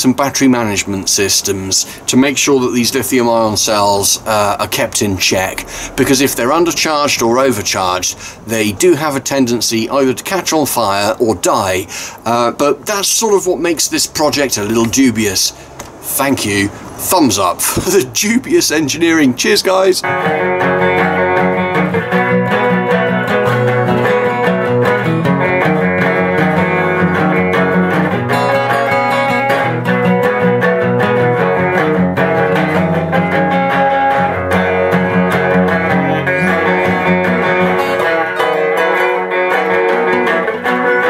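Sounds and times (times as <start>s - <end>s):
plucked guitar music: 0.0s - 15.2s, 16.8s - 41.0s.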